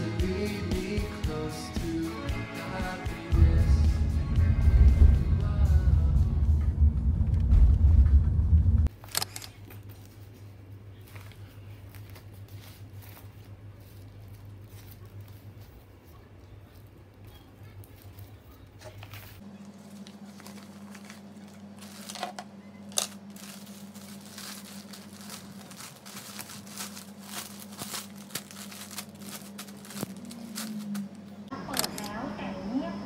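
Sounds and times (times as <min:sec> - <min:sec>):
low steady hum: 0:03.3 - 0:33.0
packaging rustling and crinkling: 0:11.0 - 0:15.9, 0:16.7 - 0:31.3.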